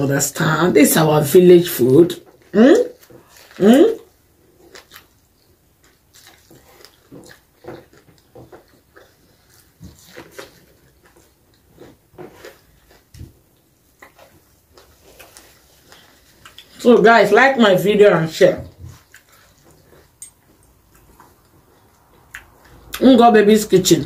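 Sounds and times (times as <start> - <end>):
biting and chewing: 2.2 - 17.1, 18.6 - 24.0.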